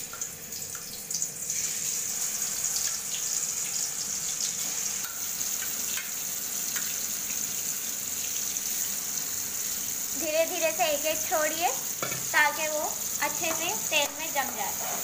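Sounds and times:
meat sizzling in hot oil: 0:00.0 - 0:15.0
oil popping and crackling: 0:02.8 - 0:07.1.

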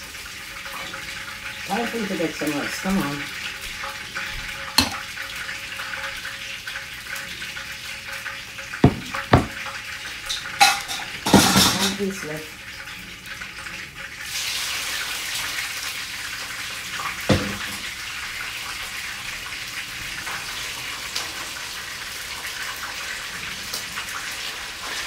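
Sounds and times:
fish frying in hot oil: 0:00.0 - 0:25.0
sharp knock: 0:08.8 - 0:09.6.

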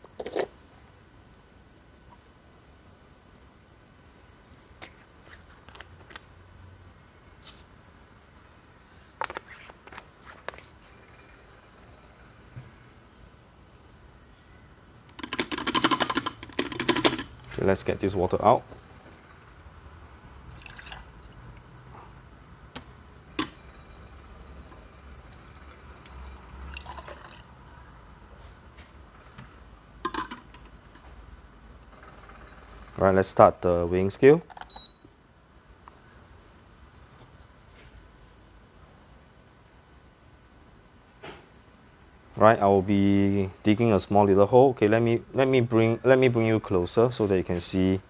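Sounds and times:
glass and plastic clinks: 0:05.2 - 0:06.4, 0:09.2 - 0:10.2.

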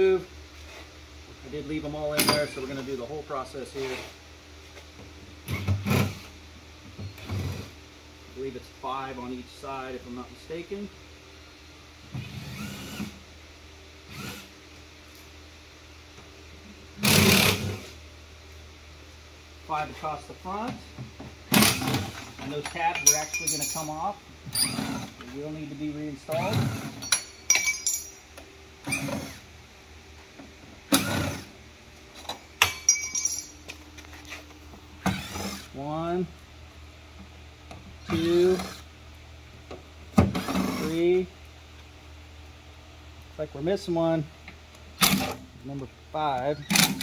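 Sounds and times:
ringing metallic clink: 0:22.7 - 0:24.0, 0:27.0 - 0:28.3, 0:32.6 - 0:33.6
drill driver whirring: 0:35.0 - 0:35.7.

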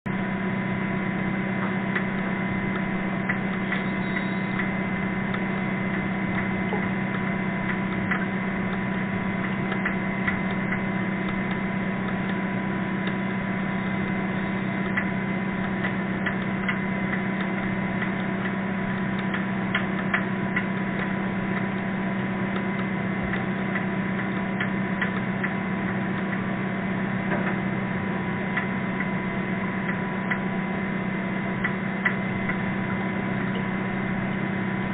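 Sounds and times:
low underwater boat hum: 0:00.0 - 0:34.9
whale pulsed call: 0:01.1 - 0:19.7
irregular ticking: 0:01.6 - 0:27.6.

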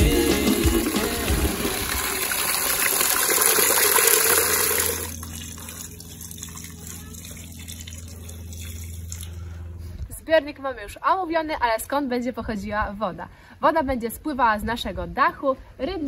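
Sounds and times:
low hum: 0:00.0 - 0:14.0
water running into plastic bucket: 0:00.5 - 0:09.4.

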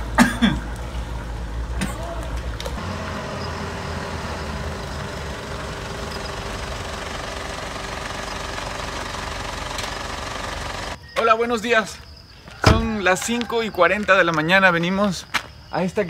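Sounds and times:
steady mechanical rumble: 0:00.0 - 0:11.0.

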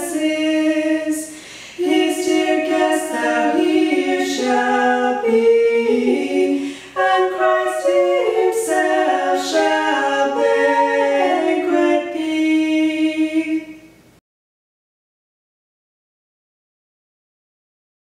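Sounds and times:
women singing hymn unaccompanied: 0:00.0 - 0:13.9.

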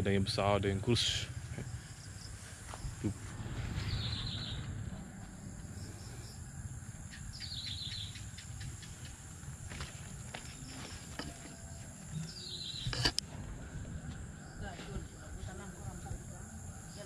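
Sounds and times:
low rumble: 0:00.8 - 0:09.7, 0:13.1 - 0:16.9
bird chirping: 0:03.1 - 0:04.9, 0:05.7 - 0:09.2, 0:10.6 - 0:13.2.

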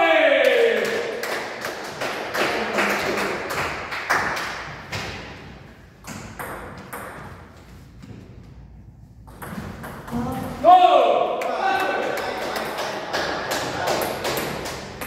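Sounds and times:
table tennis ball bouncing: 0:06.0 - 0:07.5, 0:09.2 - 0:10.6, 0:13.9 - 0:15.0.

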